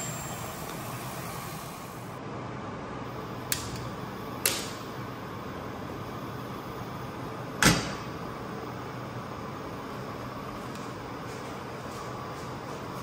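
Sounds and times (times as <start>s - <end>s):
gas hiss: 0.0s - 2.2s.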